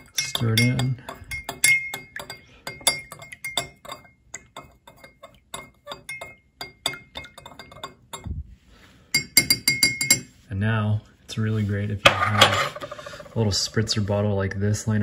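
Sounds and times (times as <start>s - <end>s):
metal spoon clinking against glass: 0.0s - 8.2s, 9.2s - 10.3s.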